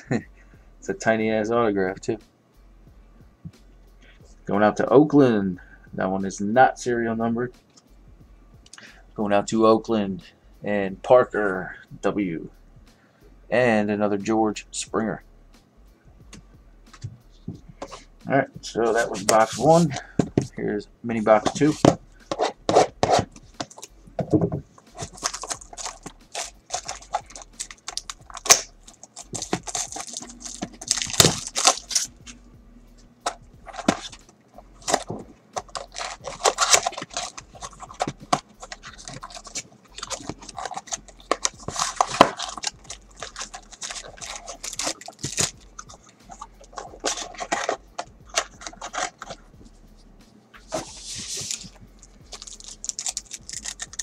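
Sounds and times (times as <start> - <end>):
foil pack crinkling: 24.9 - 32.2, 33.2 - 34.2, 34.8 - 49.4, 50.9 - 54.0
cardboard box tearing: 25.0 - 32.1, 35.7 - 47.8.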